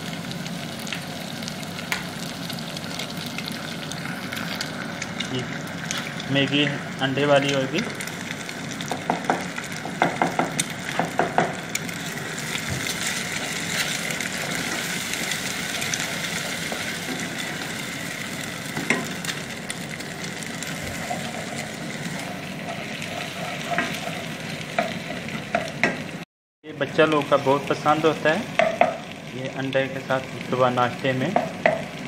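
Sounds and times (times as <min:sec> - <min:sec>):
eggs sizzling in oil: 0:00.0 - 0:32.0
spatula knocking against pan: 0:08.9 - 0:11.6
spatula scraping pan: 0:20.6 - 0:25.8.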